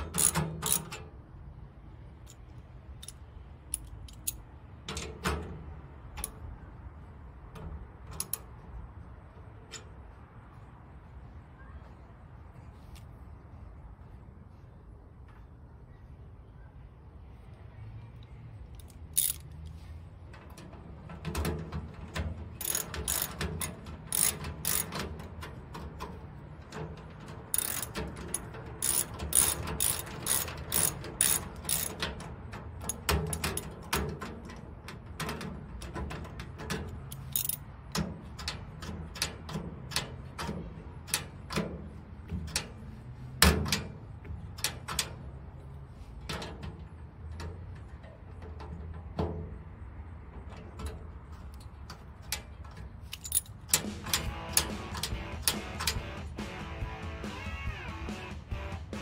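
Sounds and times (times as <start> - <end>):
ratchet wrench clicking: 0.0 - 1.0, 2.2 - 4.5, 8.1 - 8.5, 18.7 - 19.8, 22.6 - 34.6, 36.8 - 41.7, 50.9 - 56.0.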